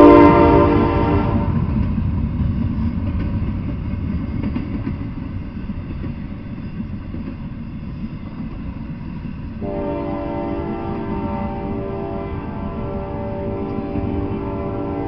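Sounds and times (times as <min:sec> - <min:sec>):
train horn: 0:00.0 - 0:01.7, 0:09.6 - 0:15.0
freight train rumbling past: 0:00.0 - 0:15.0
train wheel clicks: 0:01.6 - 0:09.6, 0:13.6 - 0:14.4.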